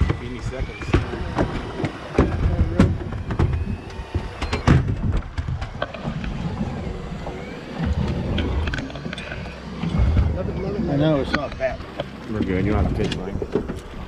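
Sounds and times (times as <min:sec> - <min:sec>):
sharp knocks and clicks: 0:00.0 - 0:06.4
low rumble: 0:00.0 - 0:14.0.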